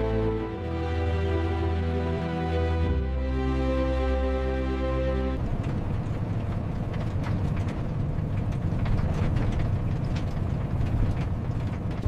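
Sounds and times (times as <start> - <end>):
low road rumble: 0.0 - 12.0
light rattles and knocks: 5.4 - 12.0.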